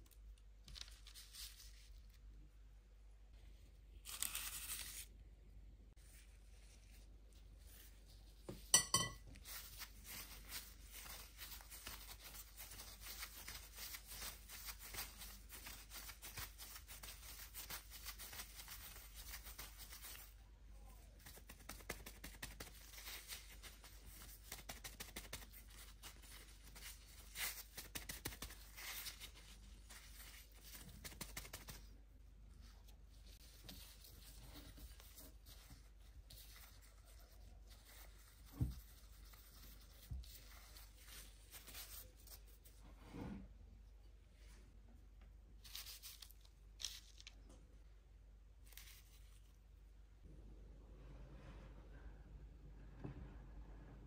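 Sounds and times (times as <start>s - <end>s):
plastic gloves crinkling: 0.2s - 2.3s, 6.0s - 20.5s, 21.2s - 42.8s, 45.5s - 47.6s, 48.4s - 49.8s
metal spoon clink: 8.7s - 9.2s.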